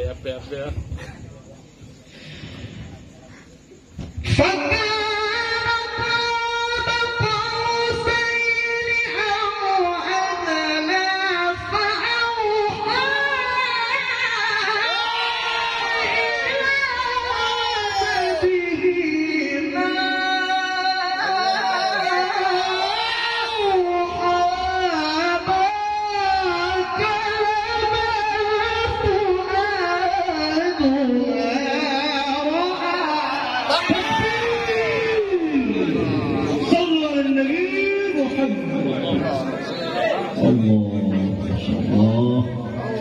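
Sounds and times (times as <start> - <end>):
man reciting melodically: 18.2 - 39.5, 40.3 - 43.0.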